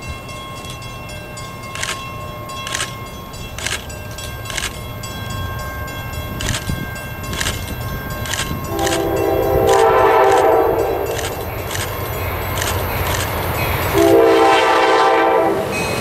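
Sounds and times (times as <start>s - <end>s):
locomotive air horn: 8.7s - 11.4s, 13.9s - 15.8s.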